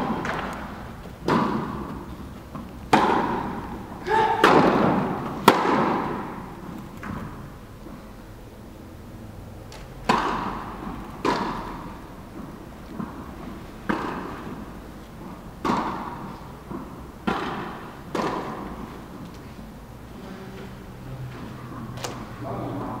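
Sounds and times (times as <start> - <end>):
tennis ball hits and bounces: 0.0 - 7.4, 9.7 - 19.4.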